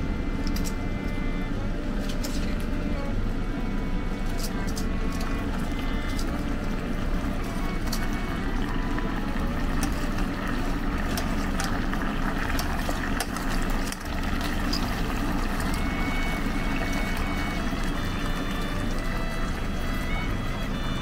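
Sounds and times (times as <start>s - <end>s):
low kitchen hum: 0.0s - 21.0s
sauce bubbling in a saucepan: 5.4s - 21.0s.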